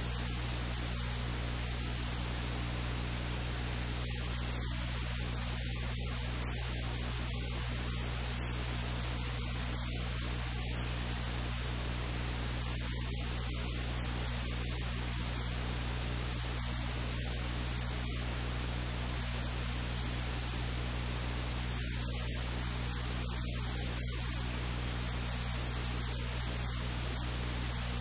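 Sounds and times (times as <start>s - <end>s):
low electrical hum: 0.0s - 28.0s
steady hiss: 0.0s - 28.0s.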